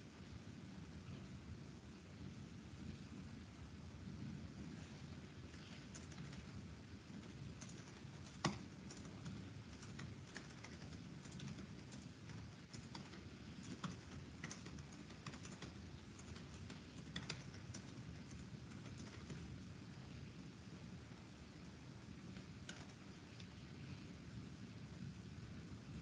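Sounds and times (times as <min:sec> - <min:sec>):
low steady background noise: 0:00.0 - 0:26.0
keyboard keystrokes: 0:05.6 - 0:06.6, 0:07.2 - 0:19.5, 0:22.6 - 0:23.5.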